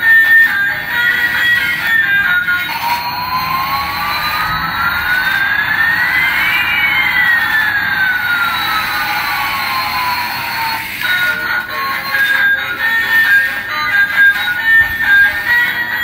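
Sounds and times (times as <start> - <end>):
toy jet engine sound effect: 0.1 - 16.0.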